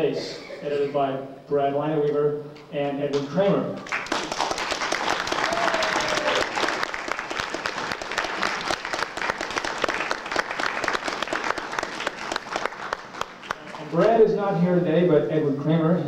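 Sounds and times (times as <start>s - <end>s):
audience applauding: 3.8s - 14.2s.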